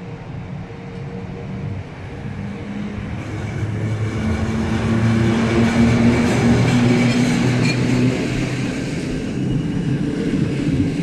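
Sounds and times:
electric locomotive hum and rumble: 0:00.0 - 0:11.0
locomotive whine: 0:00.0 - 0:11.0.

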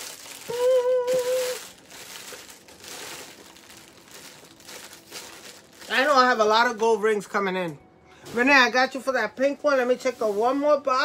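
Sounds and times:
packaging crinkling: 0:00.0 - 0:06.8
person humming: 0:00.4 - 0:01.7.

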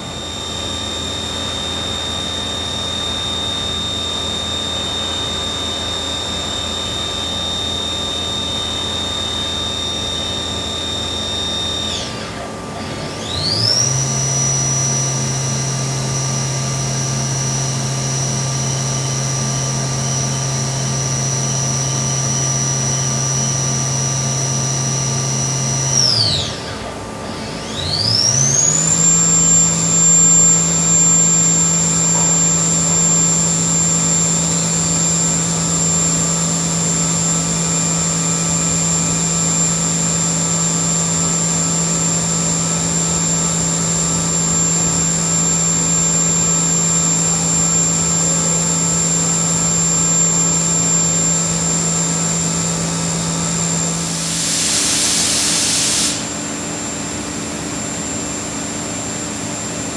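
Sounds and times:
machine spindle whine: 0:00.0 - 0:59.9
short hiss: 0:54.2 - 0:56.3.

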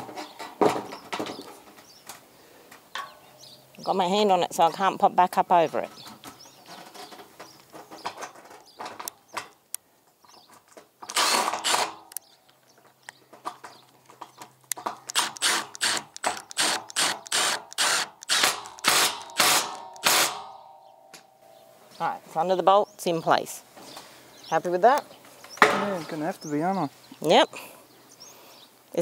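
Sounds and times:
cordless power drill bursts: 0:11.1 - 0:12.0, 0:15.1 - 0:20.4.

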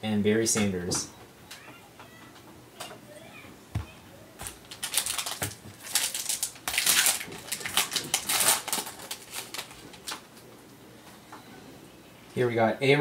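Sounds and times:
foil wrapper crackling: 0:04.4 - 0:10.5.

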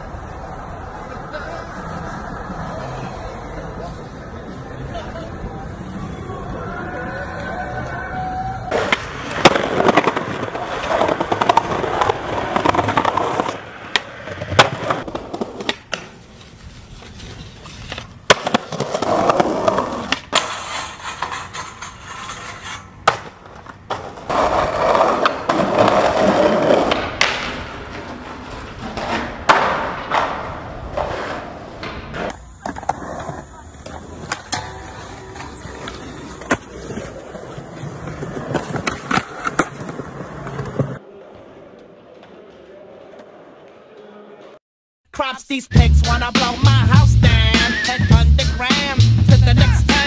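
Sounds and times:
skateboard wheels rolling on concrete: 0:00.0 - 0:44.6
skateboard clacks: 0:08.7 - 0:16.2, 0:17.0 - 0:41.0.

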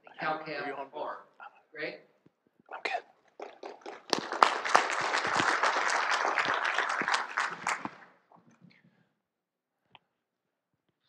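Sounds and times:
audience applauding: 0:03.4 - 0:08.2.

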